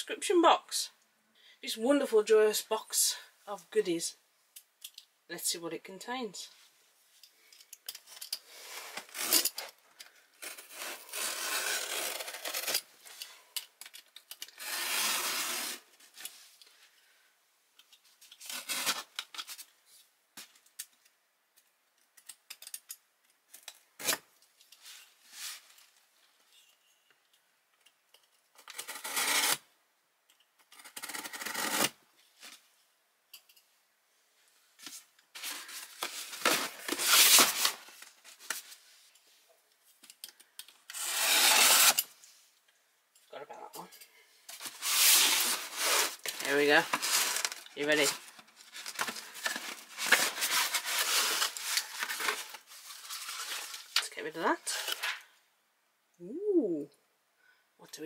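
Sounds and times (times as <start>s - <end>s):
packing tape tearing and scraping: 8.1s - 16.4s, 18.2s - 19.7s, 23.5s - 24.2s, 28.6s - 29.7s, 30.6s - 32.0s, 34.8s - 38.8s, 40.8s - 42.2s, 44.5s - 55.2s.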